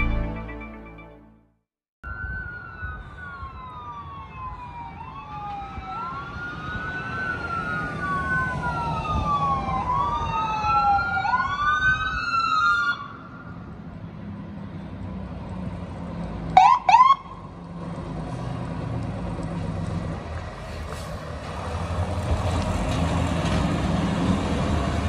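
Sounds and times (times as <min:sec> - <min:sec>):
music: 0:00.0 - 0:01.6
engine and road rumble: 0:00.0 - 0:25.0
second overlapping siren wail: 0:02.0 - 0:13.6, 0:16.6 - 0:17.4
fire engine siren wailing: 0:02.0 - 0:13.8, 0:16.5 - 0:17.6.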